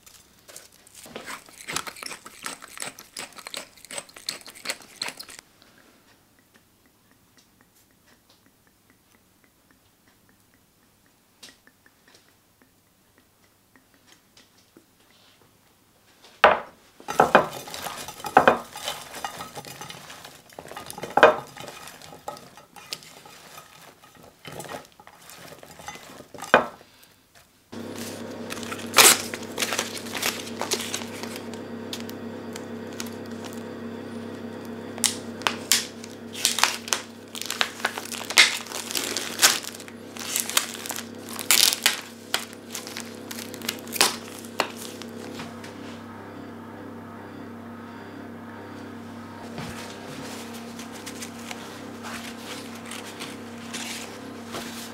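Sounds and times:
plastic pack crinkling open: 0:00.0 - 0:05.4, 0:28.0 - 0:33.6, 0:35.0 - 0:45.2, 0:52.2 - 0:54.1
steady low hum: 0:27.7 - 0:54.9.

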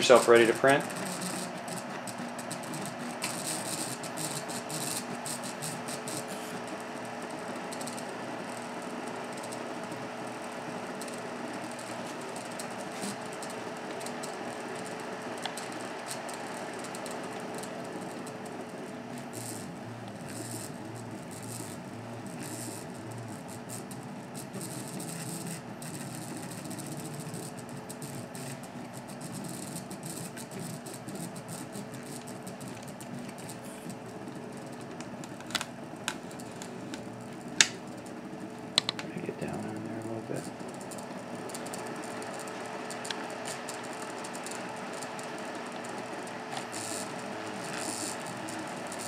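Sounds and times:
cooling fan hum: 0:00.0 - 0:49.0
stepper motors whirring: 0:38.7 - 0:49.0
sharp clicks: 0:38.8 - 0:39.1.

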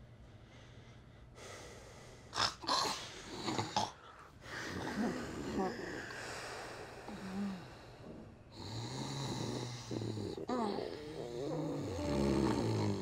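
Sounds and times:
woman snoring: 0:02.7 - 0:06.2, 0:06.8 - 0:13.0.

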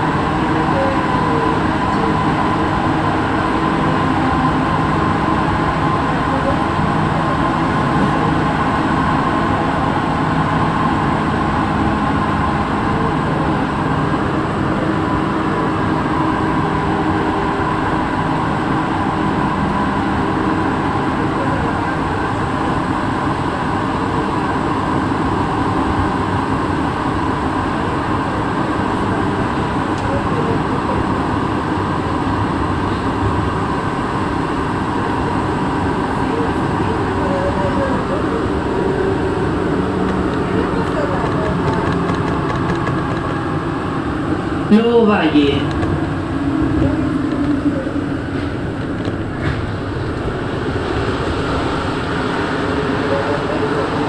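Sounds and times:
metro train rumble in tunnel: 0:00.0 - 0:54.0.

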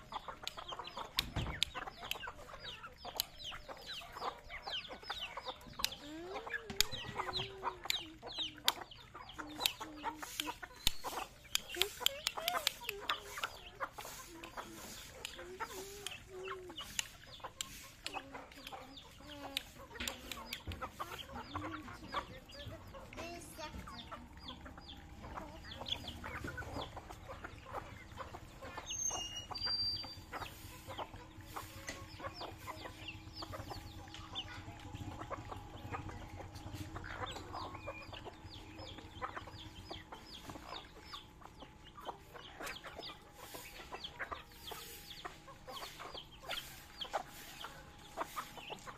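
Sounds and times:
beaks pecking on concrete: 0:00.0 - 0:48.9
chickens clucking softly: 0:00.0 - 0:48.9
high chirps: 0:23.6 - 0:48.9.

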